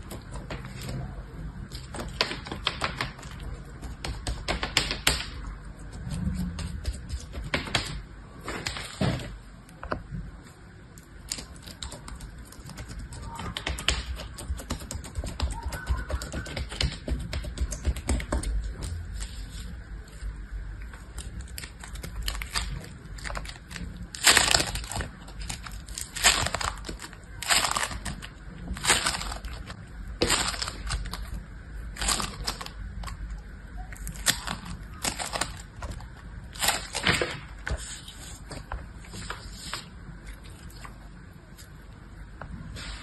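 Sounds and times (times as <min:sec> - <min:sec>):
foam slime crunching and crackling: 0:21.0 - 0:33.2, 0:33.8 - 0:41.8.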